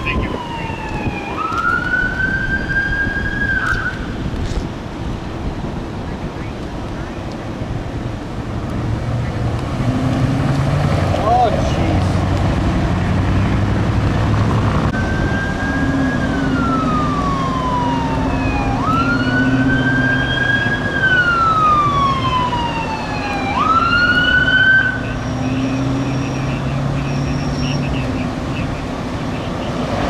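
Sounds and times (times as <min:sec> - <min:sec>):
fire engine siren wailing: 0:00.0 - 0:04.4, 0:14.8 - 0:30.0
traffic and engine noise: 0:00.0 - 0:30.0.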